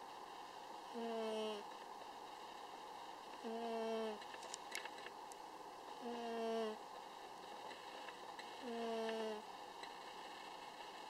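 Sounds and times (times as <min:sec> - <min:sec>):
faint clicks: 0:04.2 - 0:05.4.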